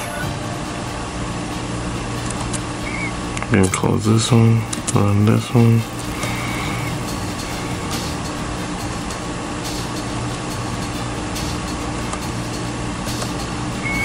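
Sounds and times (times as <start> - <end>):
machine hum and hiss: 0.0 - 14.0.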